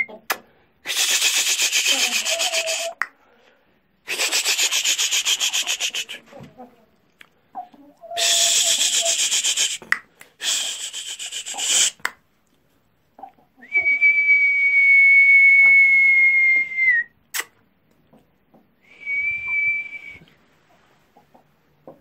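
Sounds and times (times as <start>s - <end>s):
rasping rubbing noise: 4.1s - 6.4s, 8.3s - 12.1s
person whistling high note: 13.7s - 17.2s, 18.9s - 20.3s.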